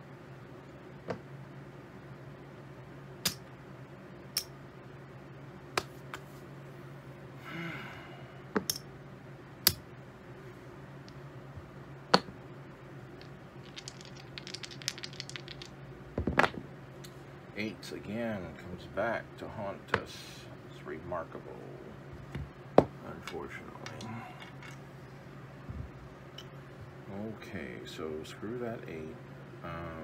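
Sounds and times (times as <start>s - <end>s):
poker chips clicking: 13.2s - 15.8s
dice knocking on table: 13.2s - 16.6s.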